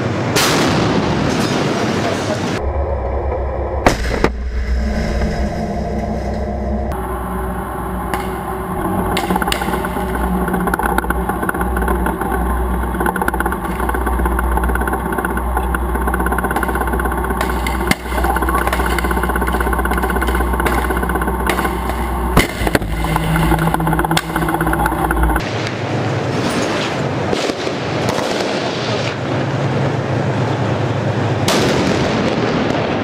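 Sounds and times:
sharp bang: 3.8 - 6.2, 16.5 - 25.6
tank engine clattering: 6.9 - 25.4.

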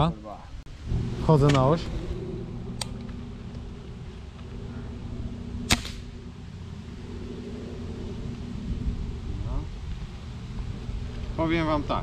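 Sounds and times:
steady low hum: 0.0 - 12.0
air rifle shot: 5.6 - 6.1.

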